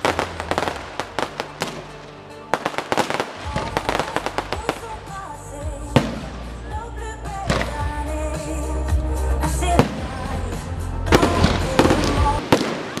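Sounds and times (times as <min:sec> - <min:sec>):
fireworks crackling and banging: 0:00.0 - 0:05.3, 0:11.1 - 0:13.0
music playing: 0:00.0 - 0:13.0.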